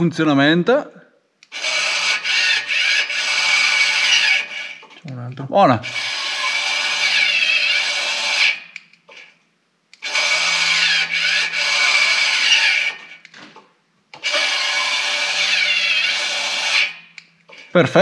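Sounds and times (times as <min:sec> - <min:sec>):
actuator motor whirring: 0:01.4 - 0:09.3, 0:10.0 - 0:18.0.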